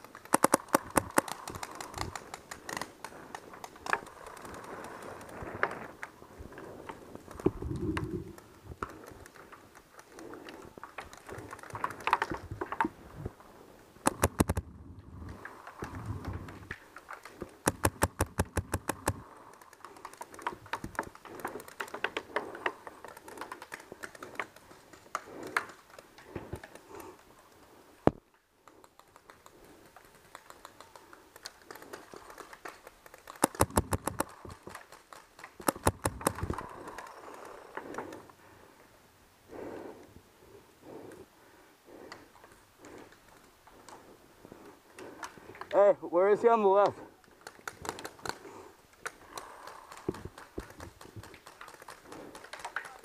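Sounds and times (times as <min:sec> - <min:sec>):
paintball markers firing: 0:00.0 - 0:05.2, 0:14.0 - 0:14.6, 0:17.3 - 0:24.6, 0:33.2 - 0:34.7, 0:35.5 - 0:38.2.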